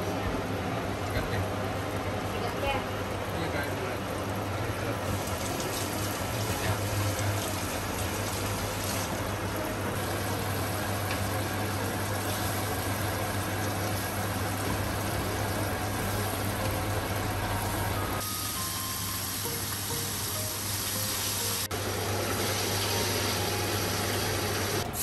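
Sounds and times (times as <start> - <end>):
oil bubbling and sizzling: 1.0 - 25.0.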